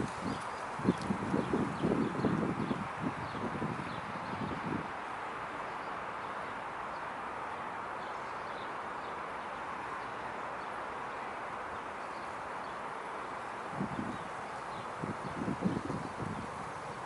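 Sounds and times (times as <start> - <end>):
outdoor ambient hiss: 0.0 - 17.0.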